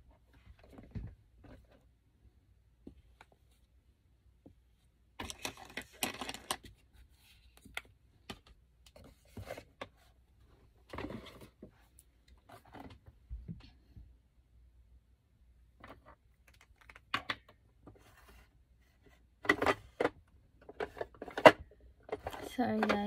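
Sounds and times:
makeup items clicking and clattering: 5.2s - 6.8s, 19.4s - 23.0s.

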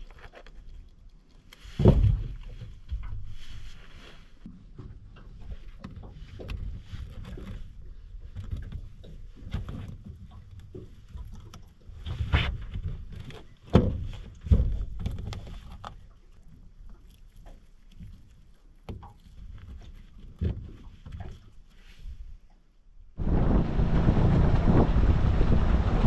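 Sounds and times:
low rumble: 23.2s - 26.0s.

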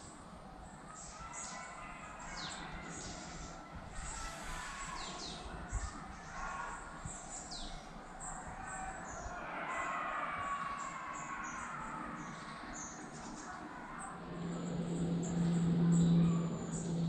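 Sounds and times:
faint distant hubbub: 0.0s - 17.0s
birds chirping: 0.6s - 17.0s.

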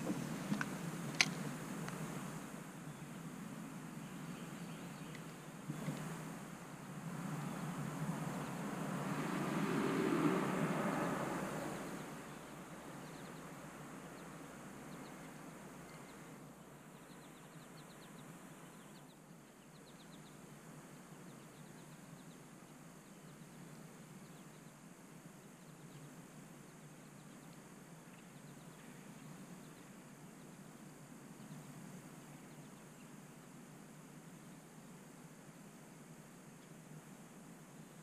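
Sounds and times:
faint steady hiss: 0.0s - 38.0s
faint bird chirps: 11.0s - 24.8s, 25.4s - 33.5s.

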